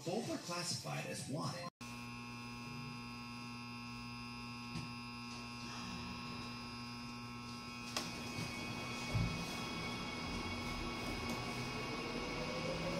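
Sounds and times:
electrical hum in subway car: 8.0s - 12.9s.

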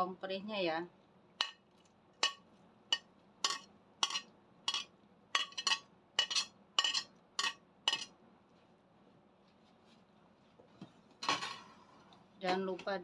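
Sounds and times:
metal spoon clinking on ceramic plate: 2.2s - 8.1s.

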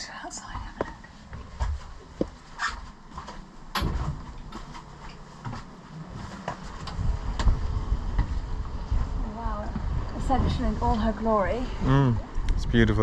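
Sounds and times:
wind on microphone: 6.8s - 13.0s.

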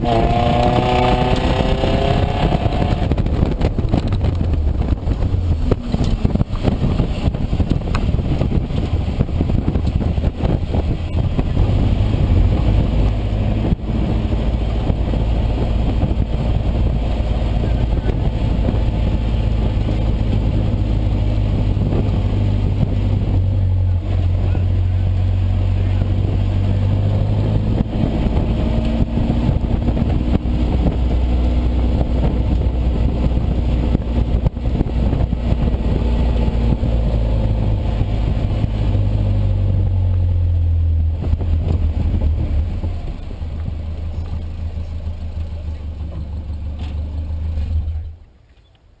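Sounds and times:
pickup engine revving: 0.0s - 48.2s.

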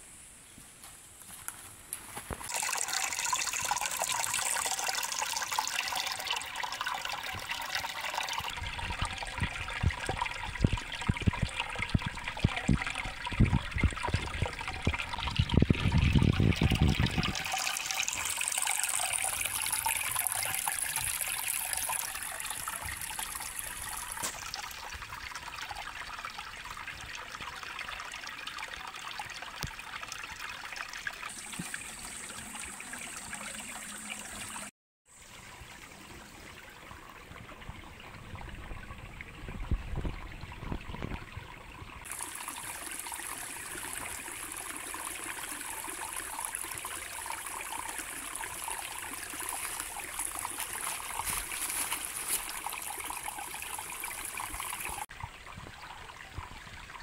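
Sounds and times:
stream burbling over rocks: 2.4s - 34.7s, 42.0s - 57.0s.

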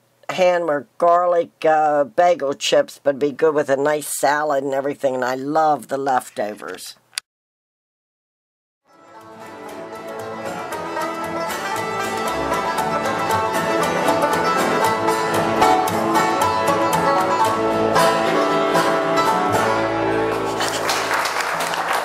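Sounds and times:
bluegrass string band music: 8.9s - 21.3s.

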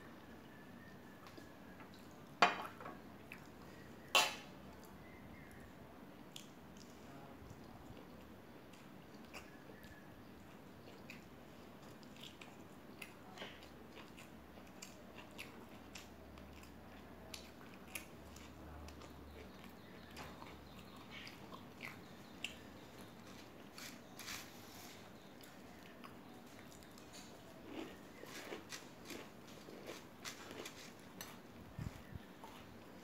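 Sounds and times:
crunchy chewing: 3.2s - 33.0s.

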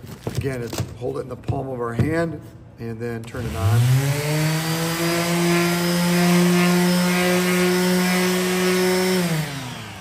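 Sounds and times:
palm sander humming: 3.4s - 10.0s.

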